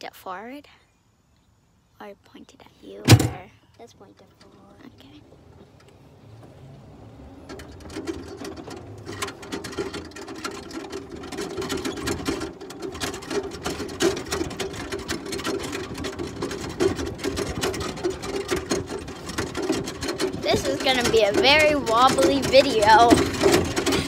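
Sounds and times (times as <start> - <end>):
cart body rattling: 2.9 - 24.0
golf cart motor drone: 5.2 - 24.0.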